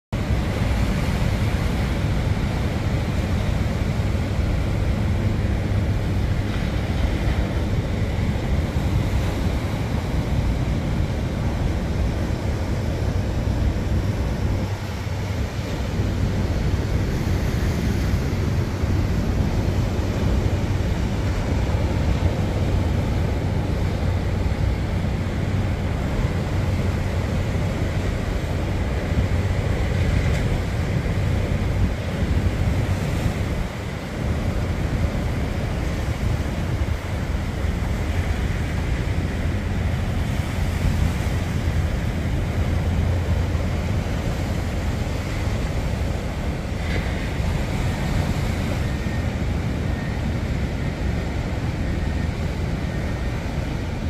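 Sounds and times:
wind buffeting microphone: 0.2s - 54.0s.

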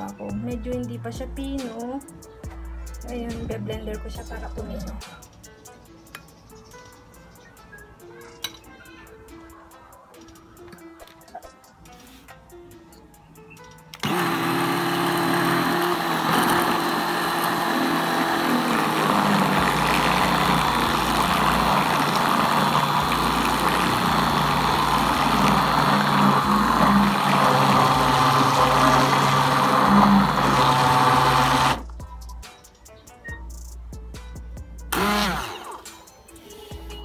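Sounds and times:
immersion blender motor running: 14.0s - 31.8s, 34.9s - 35.8s.

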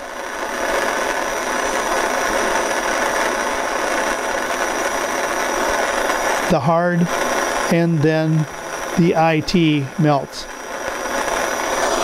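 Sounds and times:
torch flame hissing: 0.0s - 12.0s.

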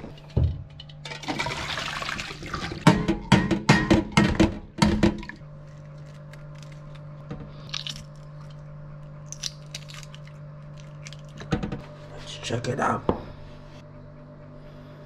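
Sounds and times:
shell peeling crackles: 5.6s - 11.5s
eggshells cracking against metal pot: 7.7s - 8.6s, 9.2s - 11.5s.

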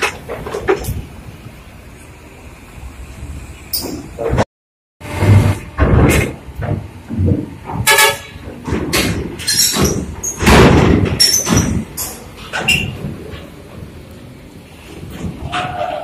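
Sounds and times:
knocks and clatter: 0.0s - 1.1s, 5.2s - 14.2s
vehicles rumbling: 0.0s - 16.0s
bus horn toot: 7.8s - 8.4s.

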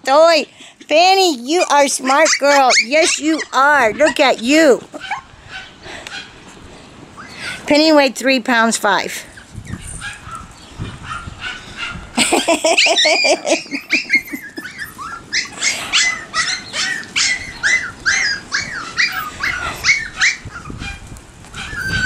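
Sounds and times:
puppy yipping and whining: 2.1s - 6.3s, 9.3s - 22.0s.

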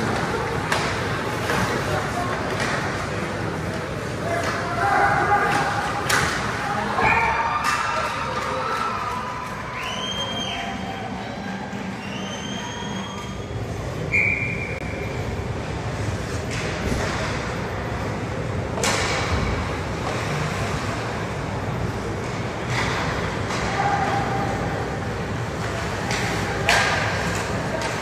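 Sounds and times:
sharp knocks of sticks and puck: 5.5s - 6.5s, 18.8s - 19.5s, 25.6s - 28.0s.

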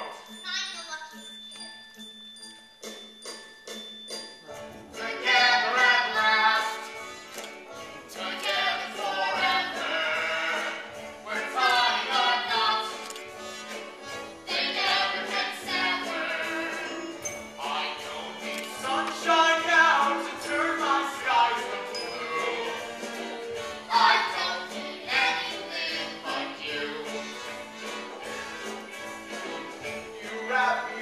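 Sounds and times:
bell-like chimes: 0.0s - 5.0s, 16.8s - 17.6s, 21.9s - 22.7s
singing with orchestra: 5.0s - 6.9s, 8.1s - 13.2s, 14.4s - 31.0s.

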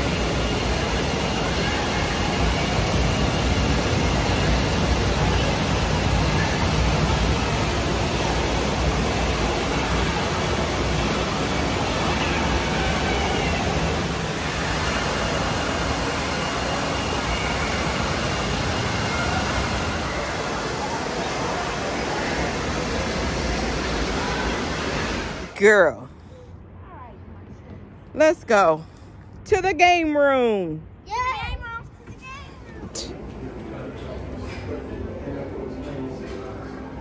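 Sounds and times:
echoing crowd din: 0.0s - 25.6s.

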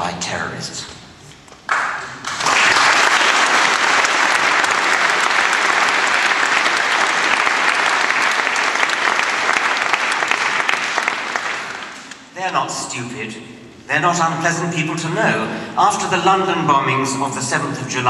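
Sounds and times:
audience applauding: 1.7s - 12.3s.

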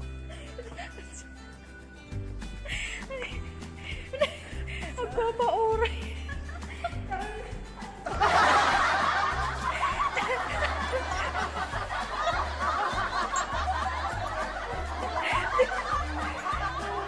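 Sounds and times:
background music with bass: 0.0s - 17.0s
loud laughter: 6.2s - 17.0s.

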